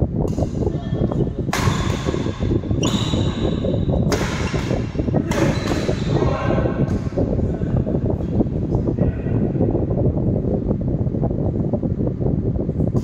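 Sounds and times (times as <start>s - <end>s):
steady low noise: 0.0s - 13.0s
rackets hitting shuttlecock: 1.4s - 6.2s.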